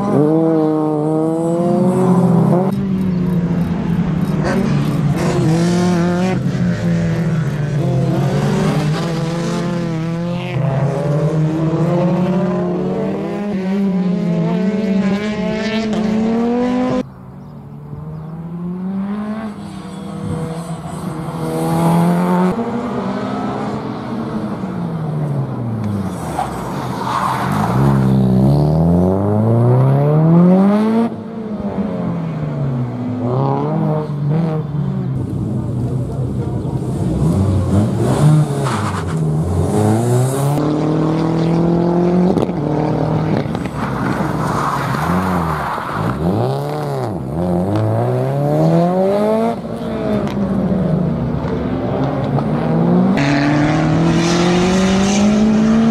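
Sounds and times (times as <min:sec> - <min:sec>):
car engine revving hard: 0:52.6 - 0:55.9.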